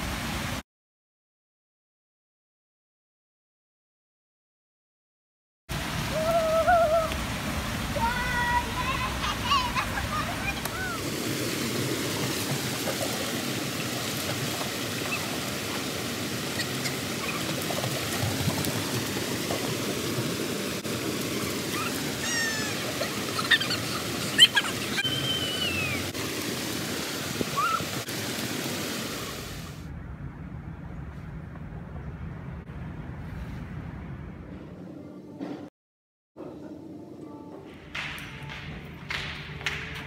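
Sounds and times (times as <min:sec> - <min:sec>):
fountain water rushing: 0:00.0 - 0:00.6, 0:05.7 - 0:29.9.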